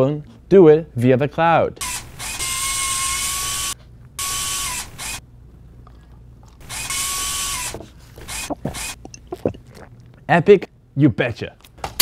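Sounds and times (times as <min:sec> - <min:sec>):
servo motor whirring: 0:01.8 - 0:05.2, 0:06.6 - 0:09.2.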